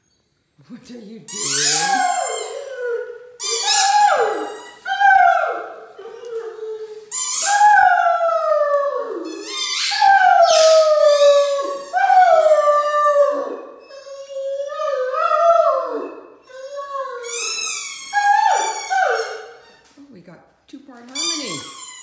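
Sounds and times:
squeaky dog toys: 0:01.3 - 0:02.7, 0:03.4 - 0:04.9, 0:07.1 - 0:07.8, 0:09.3 - 0:12.2, 0:16.6 - 0:20.0, 0:21.1 - 0:22.0
dog howling: 0:01.4 - 0:19.5.

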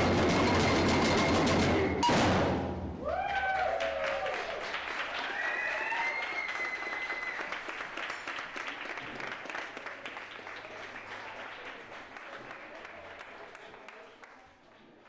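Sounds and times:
cheering shouts: 0:03.0 - 0:07.6
crowd applauding: 0:03.0 - 0:15.0.

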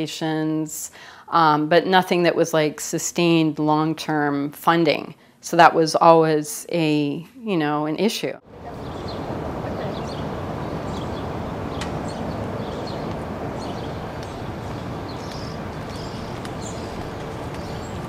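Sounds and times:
low background rumble: 0:08.5 - 0:18.0.

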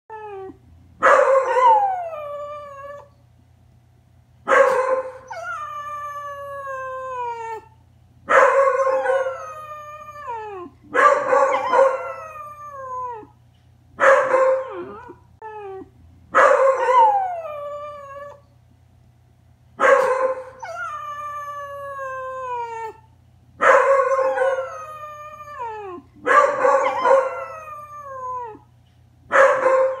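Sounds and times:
dogs howling: 0:08.5 - 0:13.3, 0:23.7 - 0:28.6.

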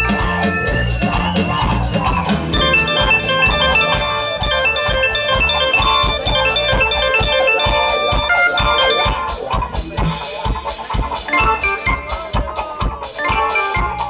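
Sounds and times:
held keyboard notes: 0:00.0 - 0:09.6, 0:11.1 - 0:12.4
steady beat: 0:00.0 - 0:14.0.

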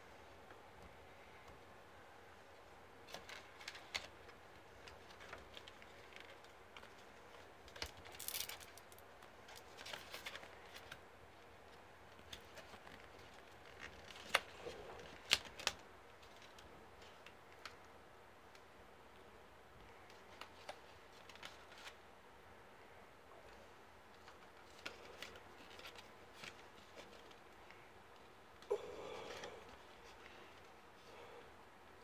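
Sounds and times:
rustles: 0:02.4 - 0:17.9, 0:19.8 - 0:22.0, 0:23.4 - 0:31.1.

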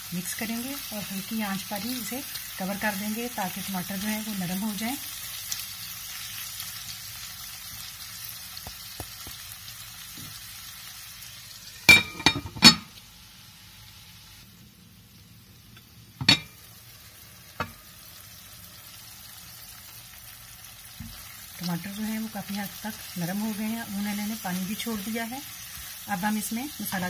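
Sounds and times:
vegetables sizzling in oil: 0:00.0 - 0:27.0
glass lid clinking on pan: 0:11.9 - 0:12.9, 0:16.2 - 0:16.6.

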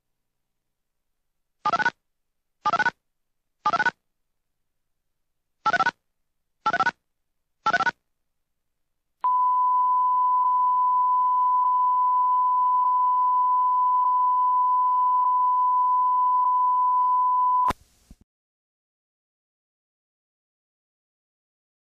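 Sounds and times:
steady test tone beep: 0:09.2 - 0:17.7.

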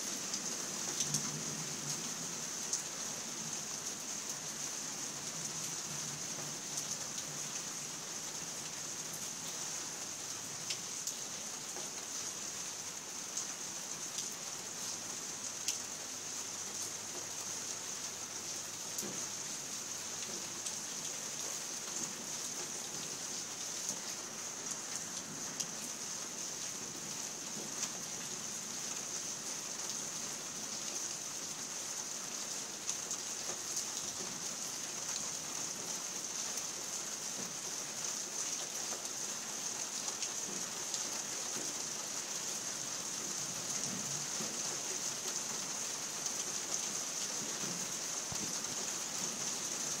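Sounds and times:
steady rain falling: 0:00.0 - 0:50.0
raindrops ticking on a surface: 0:00.1 - 0:50.0.

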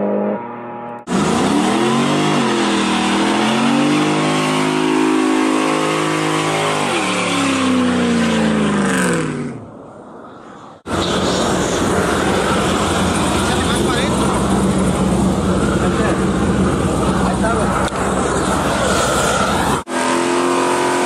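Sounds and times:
car engine revving: 0:00.0 - 0:09.7, 0:10.8 - 0:21.0
spinning tyres hissing: 0:10.5 - 0:20.0.

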